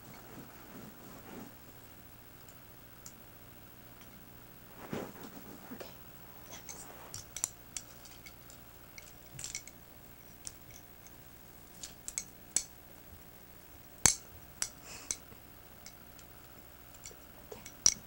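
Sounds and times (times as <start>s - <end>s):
faint steady hum: 0.0s - 18.0s
handling clicks and rustles: 4.8s - 12.7s.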